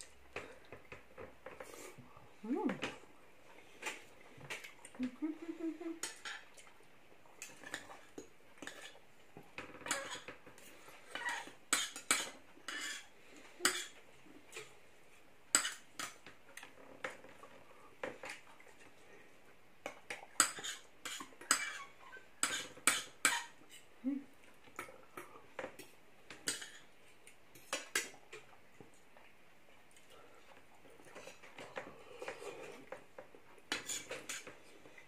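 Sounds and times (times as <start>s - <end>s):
cutlery clinking on plates: 9.7s - 10.4s, 11.1s - 14.0s, 20.4s - 23.6s, 24.8s - 26.9s, 33.7s - 34.6s.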